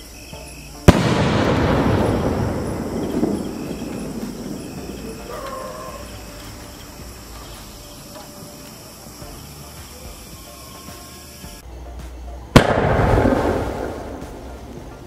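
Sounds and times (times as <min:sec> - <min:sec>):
firework burst rumble and hiss: 0:00.0 - 0:15.0
faint call: 0:02.0 - 0:11.6.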